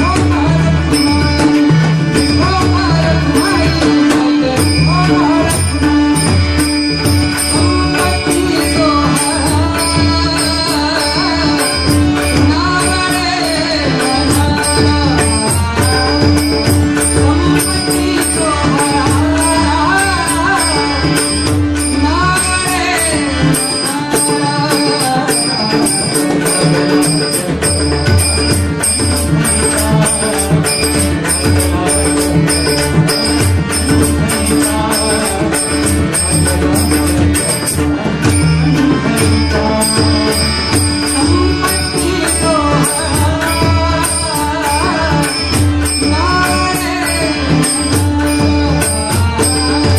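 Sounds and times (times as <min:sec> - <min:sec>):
man singing devotional song: 0:00.0 - 0:49.9
regular percussion beat: 0:00.0 - 0:49.9.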